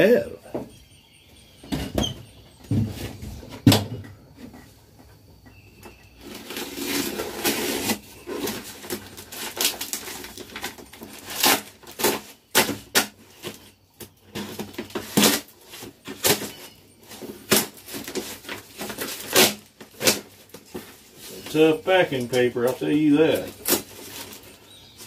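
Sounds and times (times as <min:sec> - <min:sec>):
paper and tape ripping: 0:06.2 - 0:13.7, 0:14.4 - 0:24.6
paper rustling: 0:06.2 - 0:13.7, 0:14.3 - 0:25.0.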